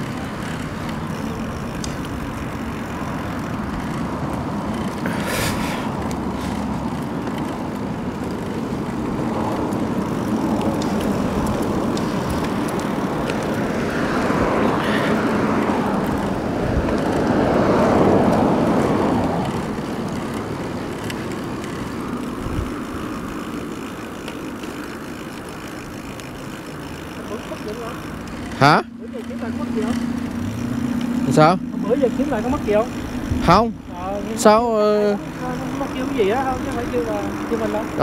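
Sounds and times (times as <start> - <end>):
car passing: 0.0 - 38.0
wind rush on microphone: 9.0 - 20.9, 21.5 - 23.2, 33.0 - 33.8.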